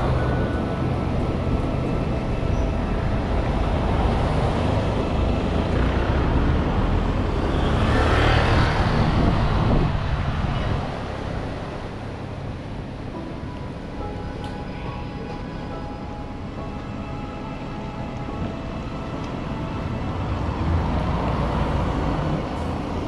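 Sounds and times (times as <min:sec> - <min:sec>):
motor scooter passing: 0:00.0 - 0:12.4
low traffic rumble: 0:00.0 - 0:23.0.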